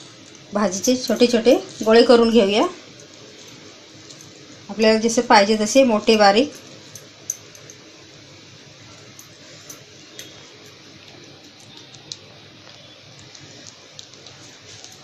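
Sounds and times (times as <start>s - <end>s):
steady low hiss: 0.0s - 15.0s
hands handling soft food: 9.0s - 15.0s.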